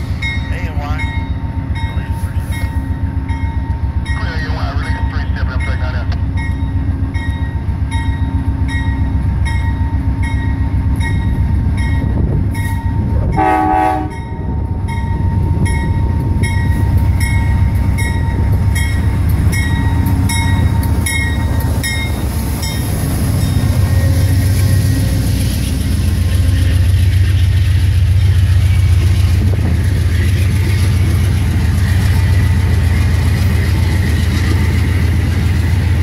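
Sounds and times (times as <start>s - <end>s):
locomotive bell ringing: 0.0s - 35.9s
diesel locomotive rumble: 0.0s - 36.0s
train horn toot: 13.2s - 14.4s.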